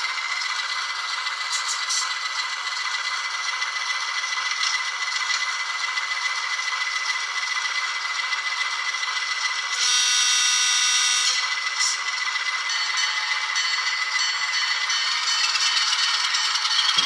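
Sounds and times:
model locomotive diesel engine sound: 0.0s - 17.0s
locomotive horn: 9.8s - 11.5s.

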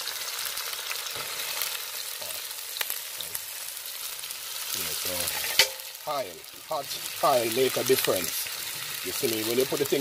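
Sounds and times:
vegetables sizzling in hot oil: 0.0s - 10.0s.

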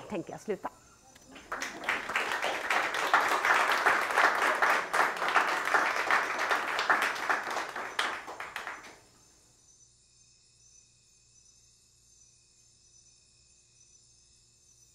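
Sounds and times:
audience applauding: 1.2s - 9.0s.

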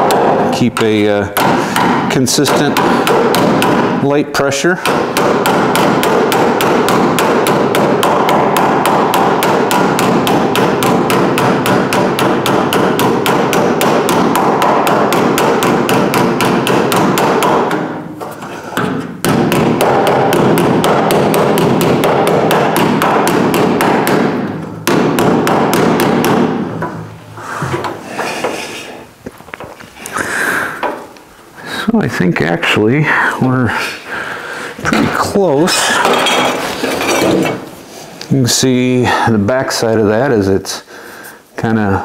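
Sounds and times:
hammer striking sheet steel: 0.0s - 29.0s.

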